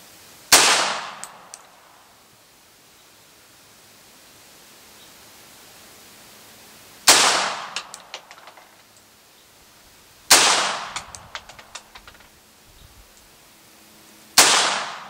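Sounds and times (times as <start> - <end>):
pistol shots: 7.1 - 8.7, 10.3 - 12.2, 14.4 - 15.0
echoing sharp cracks: 7.1 - 8.8, 10.3 - 12.3, 14.4 - 15.0.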